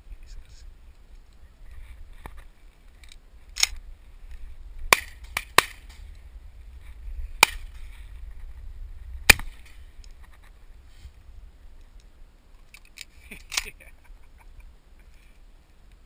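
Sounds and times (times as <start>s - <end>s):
shotgun shots: 4.9s - 6.0s, 9.3s - 9.8s.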